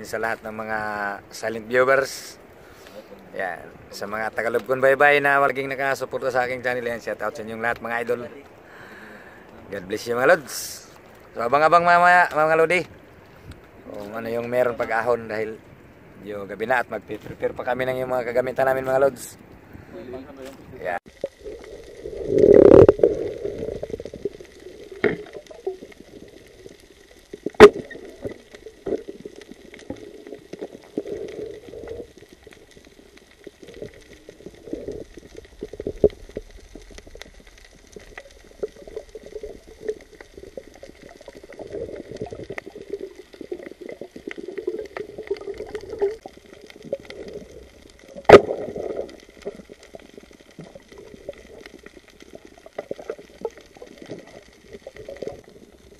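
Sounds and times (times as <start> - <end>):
muffled underwater water movement: 0.0 - 55.9.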